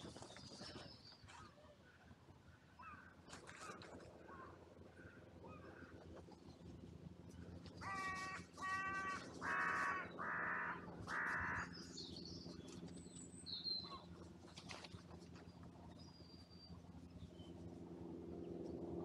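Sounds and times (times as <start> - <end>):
crow cawing: 7.8 - 11.7.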